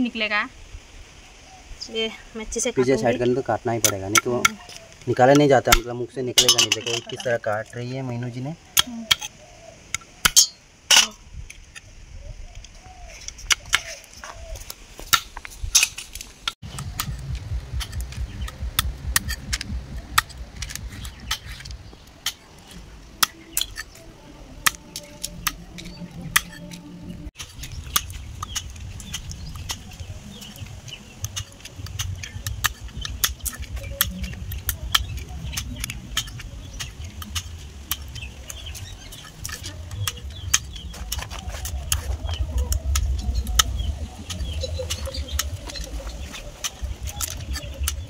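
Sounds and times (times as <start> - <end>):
low rumble: 16.6 - 48.0
knife chopping snail shells: 24.6 - 26.8, 27.4 - 48.0.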